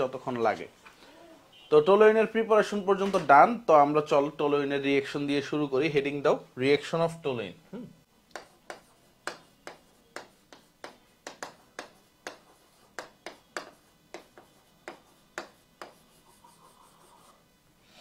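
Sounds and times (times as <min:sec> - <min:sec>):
marker writing on whiteboard: 0:08.3 - 0:17.4.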